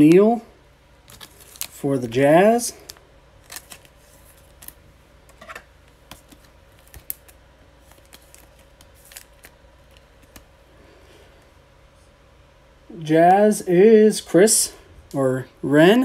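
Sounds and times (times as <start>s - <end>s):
trading cards rustling: 1.0s - 10.8s.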